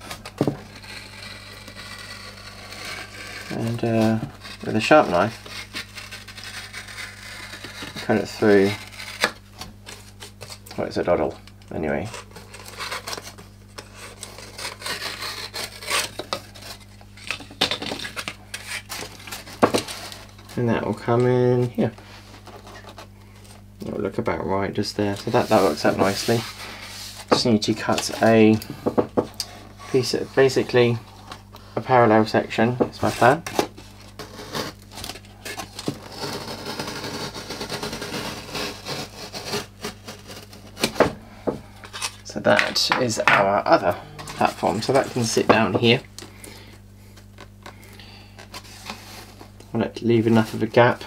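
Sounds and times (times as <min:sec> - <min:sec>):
knife cutting foam board: 0:00.0 - 0:10.6, 0:12.0 - 0:20.2, 0:33.0 - 0:41.2.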